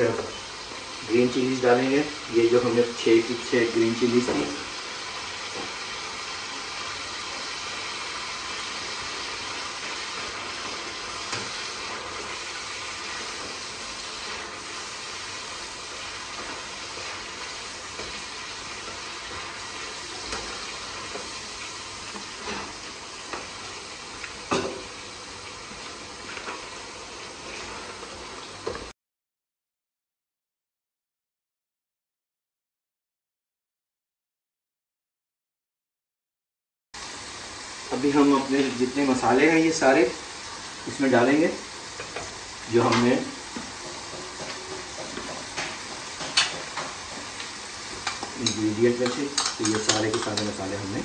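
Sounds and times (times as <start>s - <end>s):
food sizzling in a pan: 0.0s - 28.9s, 37.0s - 51.0s
spoon clinking against pan: 48.0s - 50.5s.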